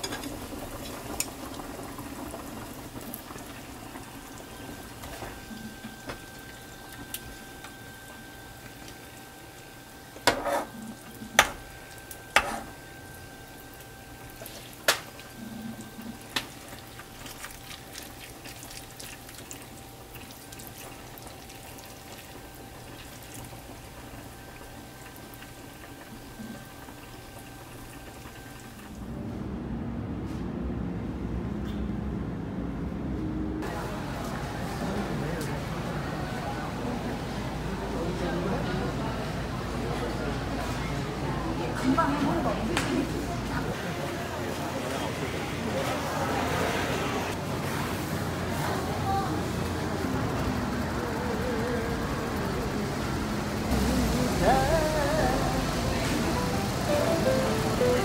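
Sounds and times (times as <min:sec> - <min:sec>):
stew bubbling in a pot: 0:00.0 - 0:29.0
low traffic rumble: 0:28.9 - 0:44.4, 0:45.2 - 0:58.0.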